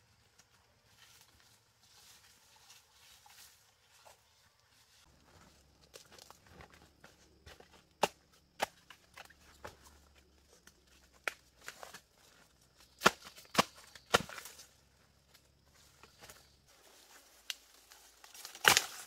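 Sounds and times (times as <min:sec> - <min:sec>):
twigs snapping and crackling: 0:12.8 - 0:14.7, 0:17.3 - 0:19.0
dry leaves rustling: 0:15.9 - 0:19.0.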